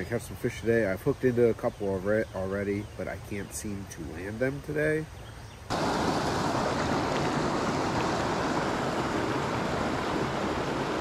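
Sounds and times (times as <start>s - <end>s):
creek water rushing over rocks: 5.7s - 11.0s.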